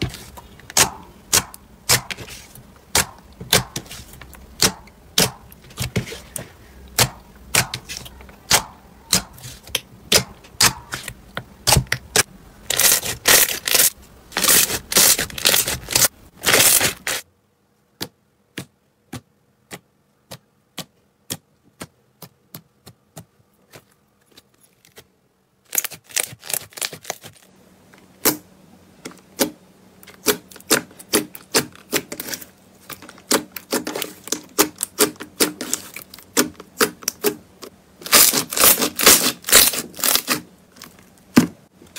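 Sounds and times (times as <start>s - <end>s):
slime popping and crackling: 38.0s - 40.4s.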